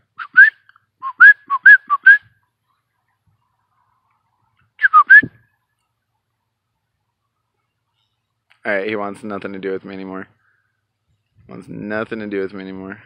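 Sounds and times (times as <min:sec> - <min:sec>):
person whistle-chirping: 0:00.2 - 0:02.3, 0:04.8 - 0:05.4.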